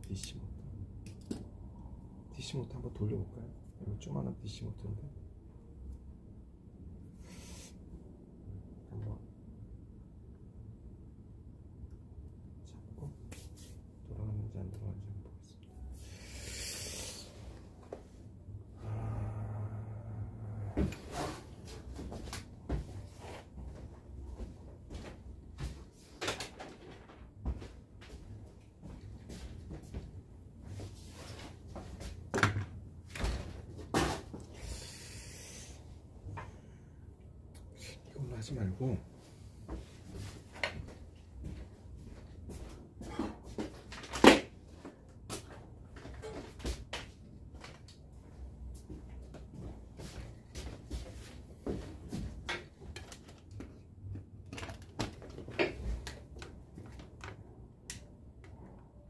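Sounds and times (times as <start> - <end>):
low steady hum: 0.0 - 59.0
objects knocking and clunking: 52.3 - 57.4.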